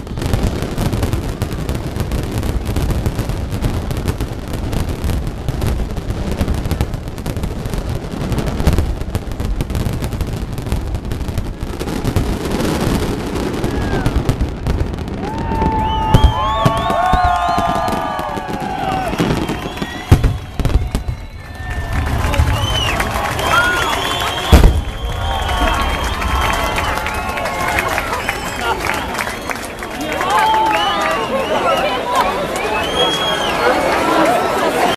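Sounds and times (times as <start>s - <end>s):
fireworks bursts and crackle: 0.0s - 34.9s
high gliding whistles: 18.9s - 29.8s
heavy low booms: 20.1s - 27.5s.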